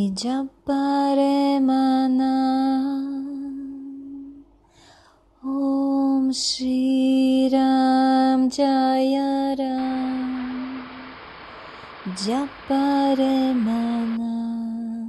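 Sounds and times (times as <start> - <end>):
person chanting long held notes: 9.7 - 14.4.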